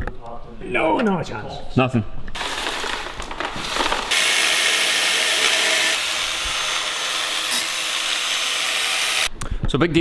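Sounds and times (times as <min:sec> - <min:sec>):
angle grinder cutting steel: 0:04.1 - 0:09.3.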